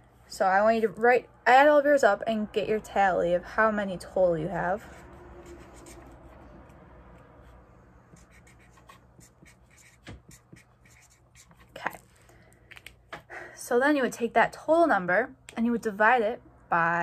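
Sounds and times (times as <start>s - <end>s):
pen scratching on paper: 4.8s - 6.2s, 7.4s - 11.8s.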